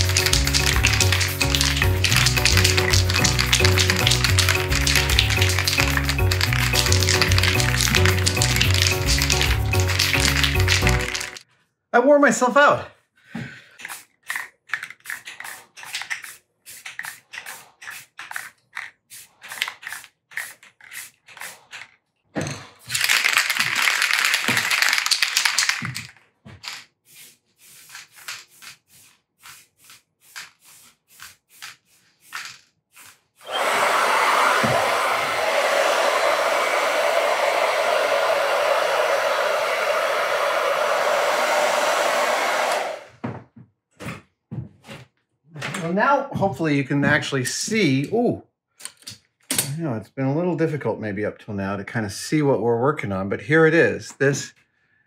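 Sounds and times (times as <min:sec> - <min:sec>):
spray hissing: 0:00.0 - 0:11.3
spray can ball rattling: 0:00.0 - 0:11.4, 0:13.8 - 0:22.0, 0:22.6 - 0:33.4
hair dryer running: 0:33.4 - 0:43.2.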